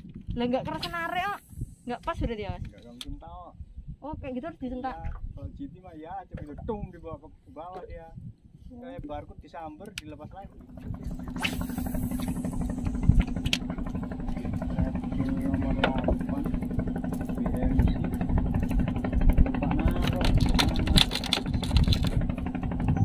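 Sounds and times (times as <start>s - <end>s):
boat engine droning: 10.4s - 23.0s
sharp clicks and knocks: 19.4s - 22.3s.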